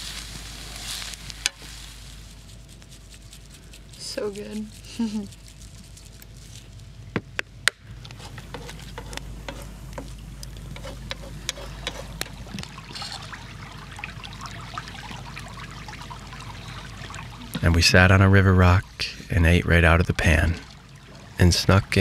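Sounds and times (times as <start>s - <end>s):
brook babbling over rocks: 12.1s - 18.4s.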